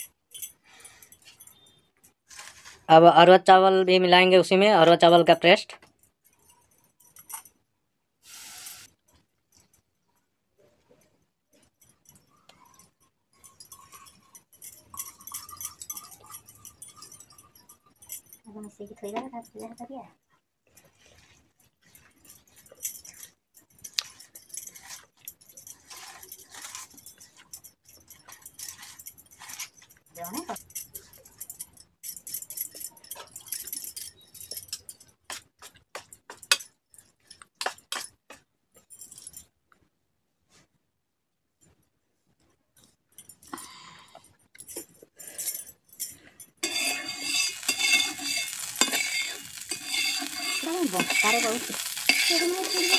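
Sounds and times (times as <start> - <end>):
bangles clinking against bowls: 0.0 - 2.2, 5.8 - 7.6, 11.5 - 20.0, 20.8 - 39.5, 42.8 - 52.9
steel spoon clinking bowl: 11.8 - 19.8, 44.6 - 52.9
batter mixed in steel bowl: 20.6 - 32.0, 46.6 - 52.9.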